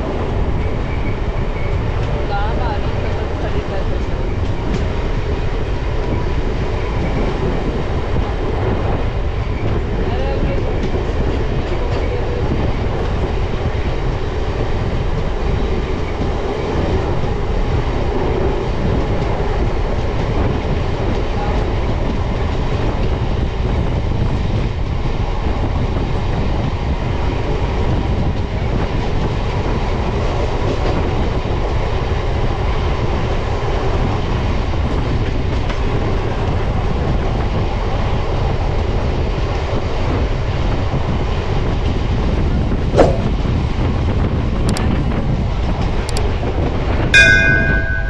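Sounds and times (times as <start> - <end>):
train wheels rumbling on rails: 0.0 - 48.0
rush of air: 42.5 - 44.2.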